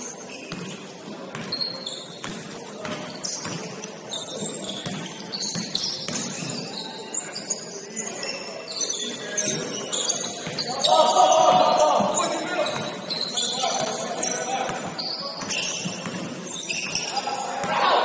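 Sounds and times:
sneakers squeaking on court: 0:00.0 - 0:18.0
basketball bouncing: 0:00.5 - 0:01.5, 0:02.2 - 0:03.7, 0:04.8 - 0:06.5, 0:14.7 - 0:16.3.

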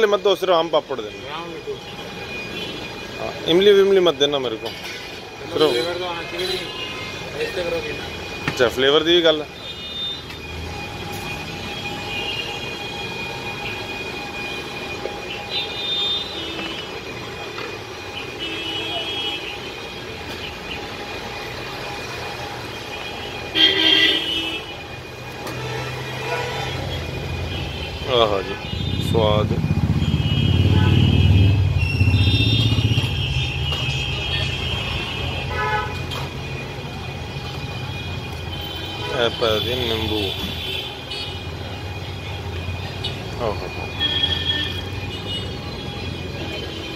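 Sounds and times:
high steady tones: 0:00.0 - 0:46.9
street traffic: 0:00.0 - 0:46.9
car horn toot: 0:18.1 - 0:20.8, 0:22.8 - 0:36.3, 0:43.9 - 0:46.9.

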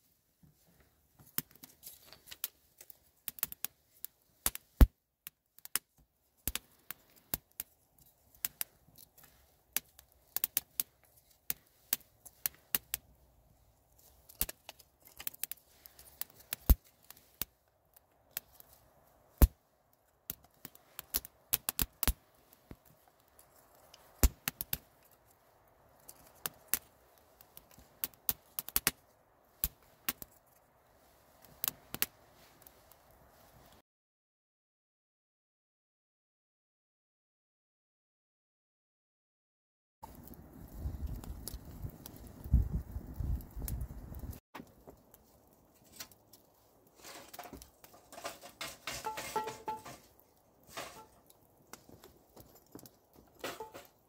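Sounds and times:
fire crackling and popping: 0:00.4 - 0:33.8, 0:40.0 - 0:54.0
soft rush of flame: 0:40.0 - 0:44.4.

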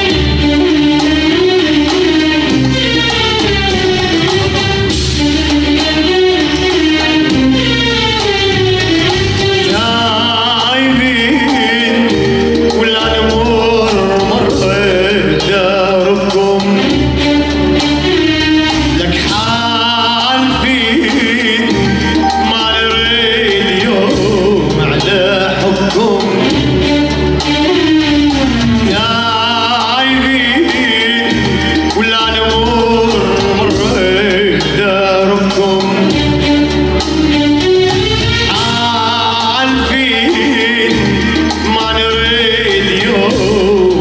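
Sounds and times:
electronic keyboards playing: 0:00.0 - 0:44.0
man singing into microphone: 0:09.6 - 0:17.8, 0:18.8 - 0:27.5, 0:28.4 - 0:36.6, 0:38.4 - 0:44.0
man singing ornamented lines: 0:09.7 - 0:17.1.

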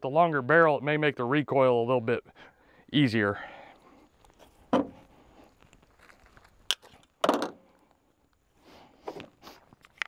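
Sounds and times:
footsteps crunching on gravel: 0:04.1 - 0:07.0.

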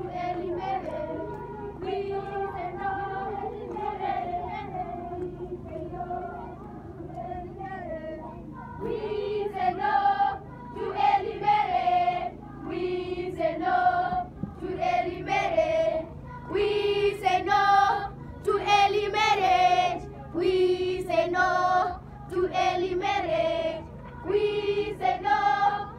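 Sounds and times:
children singing in unison: 0:00.0 - 0:25.9.

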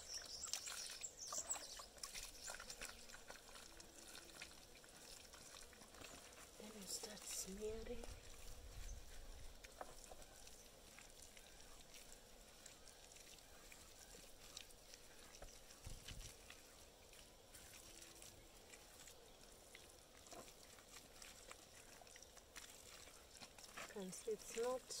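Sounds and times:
hands squelching wet dung: 0:00.0 - 0:25.0.

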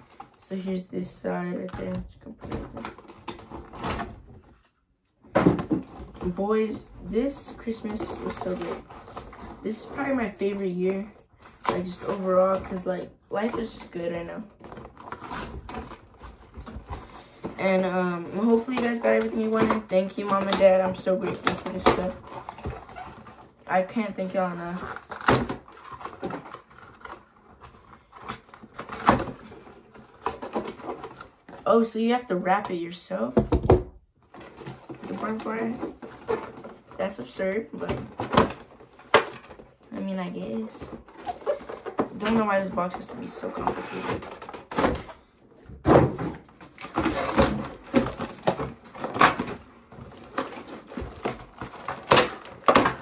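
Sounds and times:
packaging rustling and clicking: 0:01.6 - 0:17.6, 0:24.3 - 0:31.7, 0:34.2 - 0:37.2, 0:37.8 - 0:53.0.

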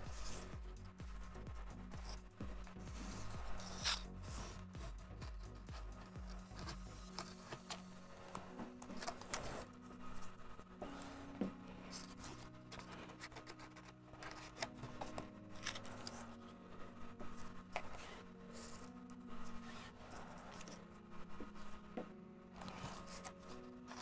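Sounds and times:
soft background music: 0:00.0 - 0:24.0
paper and card rustling: 0:02.9 - 0:09.7, 0:11.8 - 0:16.5, 0:17.2 - 0:20.8, 0:22.6 - 0:24.0.

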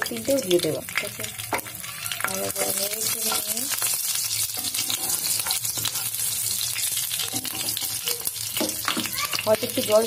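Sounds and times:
chillies sizzling in hot oil: 0:00.0 - 0:10.0.

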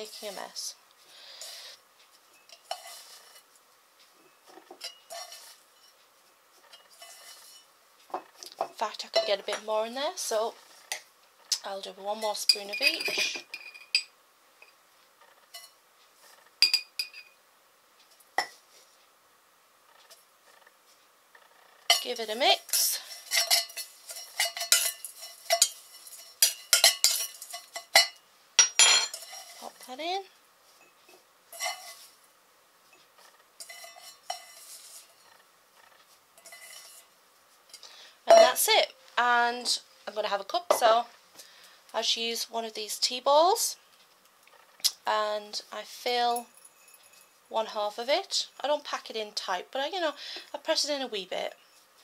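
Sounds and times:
dried herbs rustling: 0:00.0 - 0:07.7, 0:21.9 - 0:28.0, 0:29.1 - 0:30.8, 0:31.5 - 0:40.4
metal spoon scraping steel bowl: 0:02.4 - 0:03.5, 0:04.7 - 0:06.0, 0:06.6 - 0:07.7, 0:21.9 - 0:29.9, 0:31.5 - 0:32.2, 0:33.6 - 0:38.8
metal clinking on glass: 0:12.5 - 0:14.1, 0:22.7 - 0:29.7, 0:46.4 - 0:47.4.

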